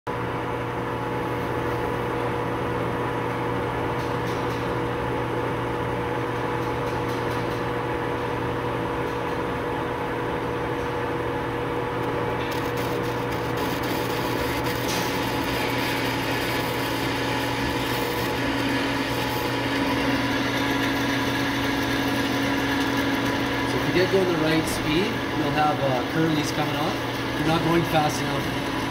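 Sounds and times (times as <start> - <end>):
low machine tone: 0.1 - 28.9
metal lathe humming: 11.2 - 28.9.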